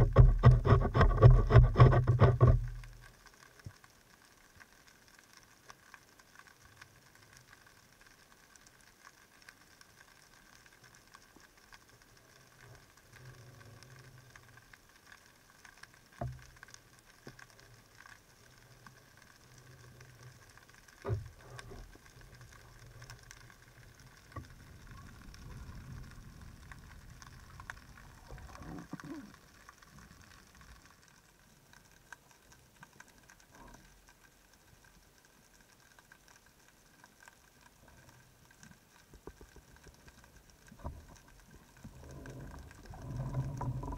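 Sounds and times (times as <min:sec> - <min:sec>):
faint underwater crackle: 0:00.0 - 0:43.9
low rumble: 0:22.5 - 0:29.2.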